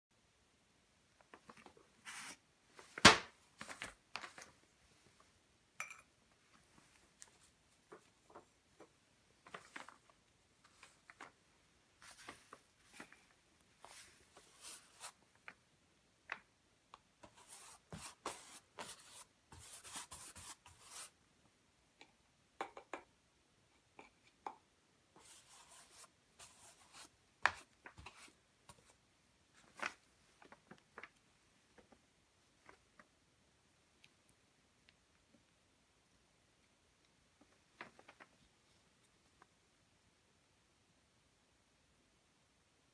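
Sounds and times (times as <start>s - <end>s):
scratchy brush strokes on canvas: 2.0s - 2.4s, 13.8s - 15.2s, 17.2s - 21.2s, 25.2s - 29.0s.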